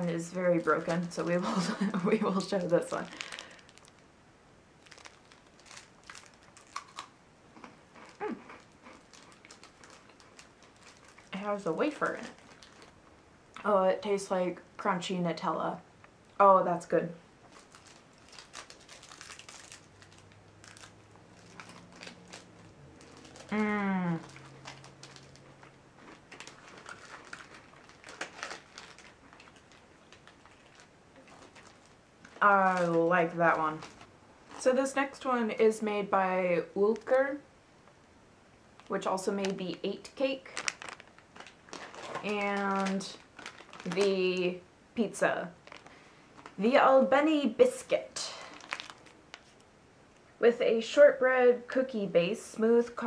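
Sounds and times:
wafer bar wrapper crinkling: 0:00.0 - 0:04.1, 0:04.8 - 0:13.1, 0:17.4 - 0:35.3, 0:38.8 - 0:44.6, 0:45.5 - 0:46.6, 0:48.3 - 0:49.6
hummed voice falling in pitch: 0:23.5 - 0:24.4.

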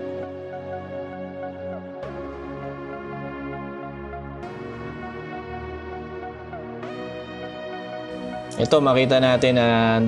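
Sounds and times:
electronic music with synth chords: 0:00.0 - 0:10.0.

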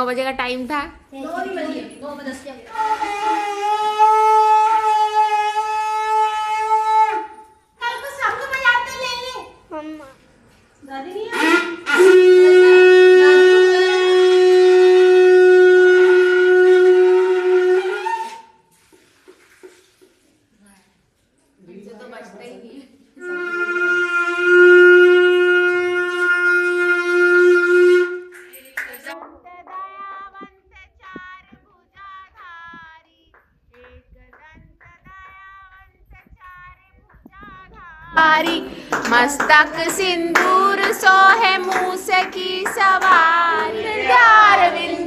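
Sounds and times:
conch shell blown: 0:02.7 - 0:07.6, 0:11.3 - 0:18.7, 0:23.2 - 0:28.6
women and girls singing: 0:28.5 - 0:45.0
hands clapping to beat: 0:36.4 - 0:44.3.

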